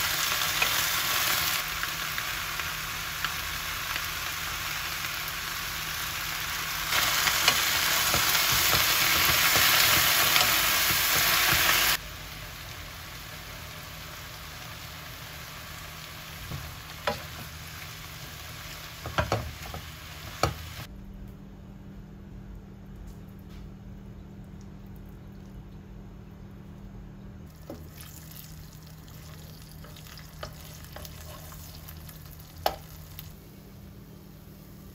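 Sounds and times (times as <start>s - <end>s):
cabbage sizzling in frying pan: 0.0s - 20.9s, 27.6s - 33.4s.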